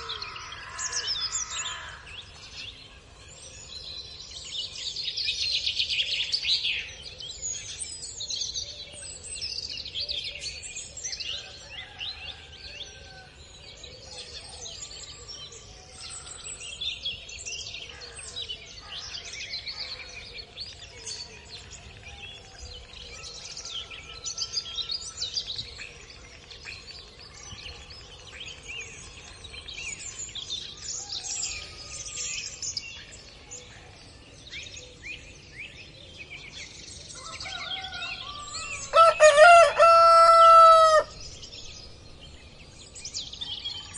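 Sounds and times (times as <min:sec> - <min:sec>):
small birds chirping: 0:13.0 - 0:43.9.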